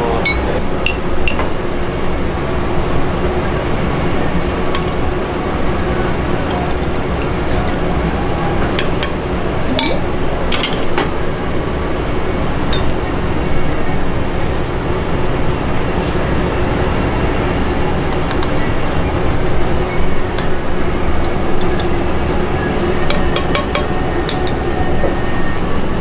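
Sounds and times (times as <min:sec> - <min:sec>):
kitchen background noise: 0:00.0 - 0:25.6
utensils clinking on pots: 0:00.2 - 0:01.6, 0:08.6 - 0:11.2, 0:12.7 - 0:13.0.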